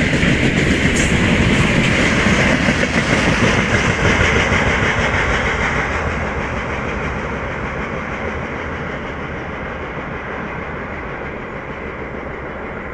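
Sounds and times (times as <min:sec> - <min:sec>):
train wheels rumbling on track: 0:00.0 - 0:12.9.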